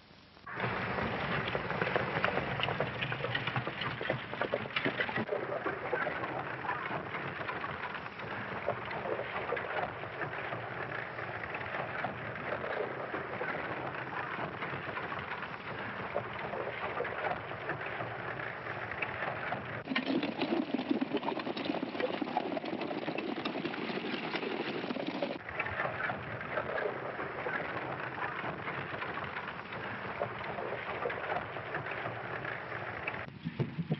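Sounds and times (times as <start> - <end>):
film soundtrack hiss: 0.0 - 19.3
horses galloping on dirt: 0.5 - 33.9.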